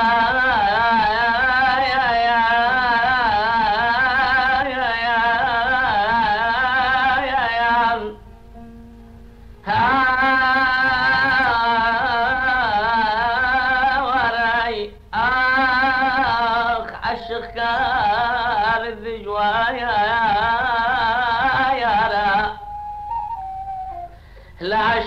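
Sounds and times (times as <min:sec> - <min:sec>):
man singing: 0:00.0 - 0:08.8, 0:09.6 - 0:22.8, 0:24.6 - 0:25.0.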